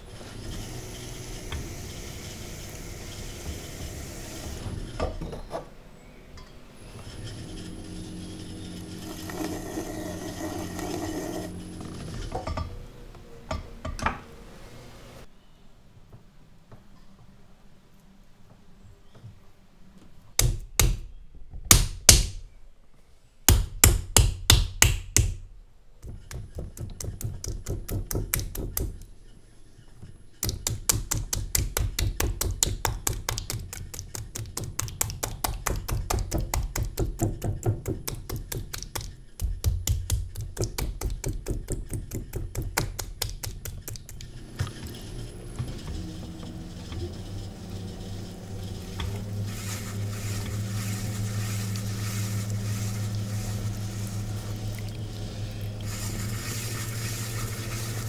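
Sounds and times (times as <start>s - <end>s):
hands slapping clay: 30.4s - 44.3s
wet rubbing of clay: 30.4s - 44.4s, 48.7s - 58.0s.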